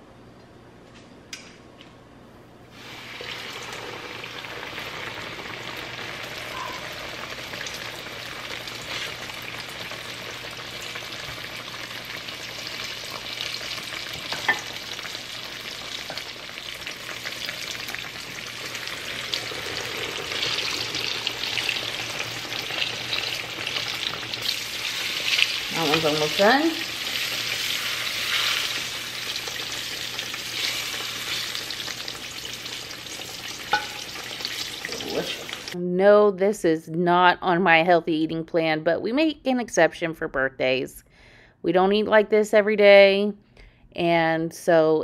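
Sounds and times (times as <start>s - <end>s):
steak sizzling in hot oil: 2.8s - 35.8s.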